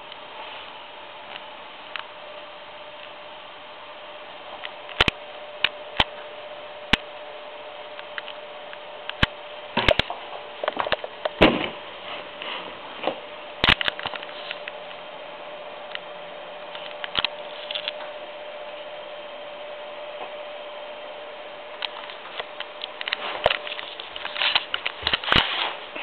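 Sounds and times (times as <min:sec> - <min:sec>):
faint steady hum: 0:00.0 - 0:26.0
steady hiss: 0:00.0 - 0:26.0.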